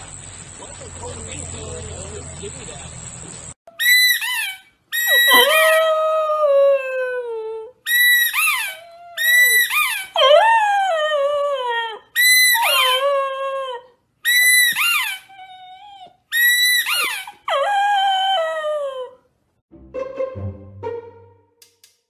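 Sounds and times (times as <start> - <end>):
puppy howling: 5.0 - 7.7, 8.4 - 13.9, 16.8 - 19.2.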